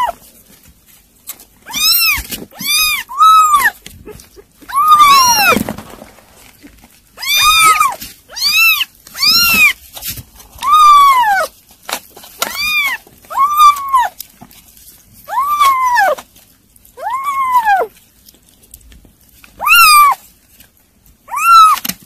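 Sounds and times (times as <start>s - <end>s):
kittens mewing: 0.0s - 0.2s, 1.6s - 5.7s, 7.2s - 9.9s, 10.5s - 11.6s, 12.4s - 14.2s, 15.3s - 16.2s, 17.0s - 18.0s, 19.6s - 20.3s, 21.3s - 22.0s.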